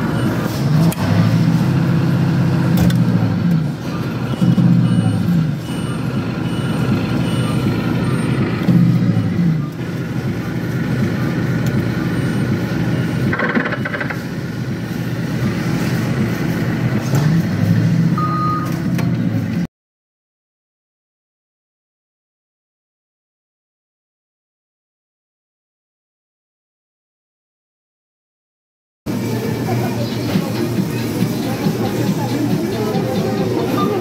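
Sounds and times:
short electronic beeps: 0.1 - 0.6, 3.9 - 9.8, 12.0 - 14.2, 18.2 - 18.8, 33.6 - 34.0
claw machine mechanical hum: 29.1 - 34.0.

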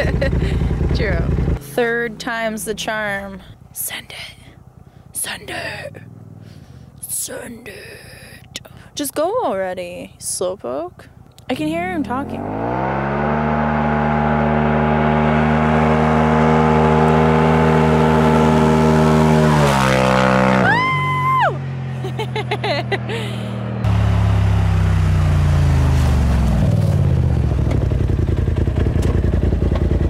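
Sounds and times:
engine revving: 11.6 - 30.0.

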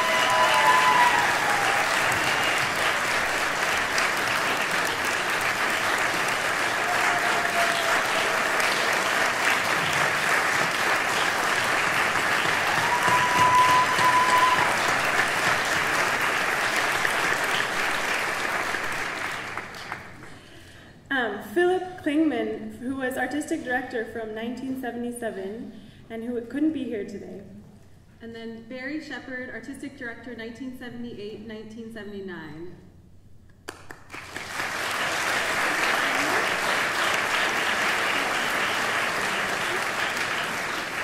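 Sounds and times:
short calls from audience: 0.0 - 3.1, 6.5 - 9.7, 12.4 - 15.0
audience applauding: 0.0 - 20.4, 33.7 - 41.0.

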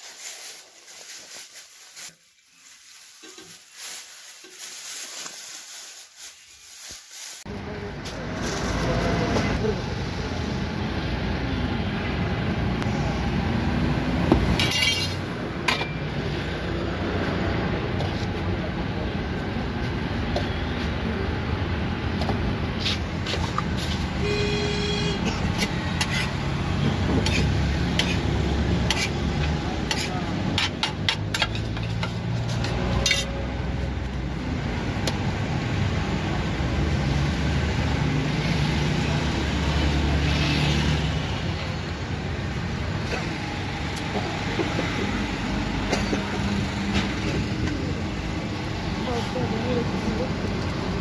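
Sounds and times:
paper wrapper rustling and crinkling: 0.0 - 7.5
street traffic rumble: 0.0 - 51.0
car horn toot: 24.2 - 25.4
metal spatula scraping griddle: 25.3 - 26.5, 27.2 - 33.4.

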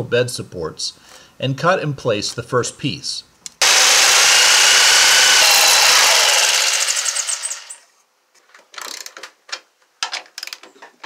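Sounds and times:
jigsaw cutting wood: 3.6 - 7.9.

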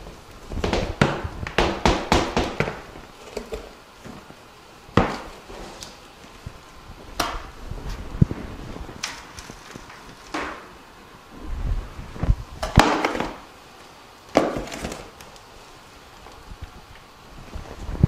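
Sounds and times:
hard objects knocking: 12.6 - 13.4, 14.3 - 15.2.

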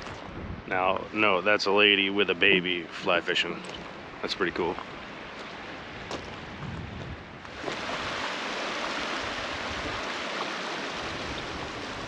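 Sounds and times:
river running over rocks: 3.1 - 6.5, 7.4 - 12.0.

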